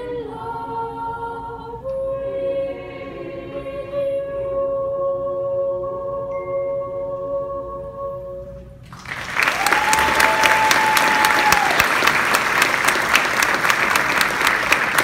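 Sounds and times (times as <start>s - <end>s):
audience applause: 8.9s - 15.0s.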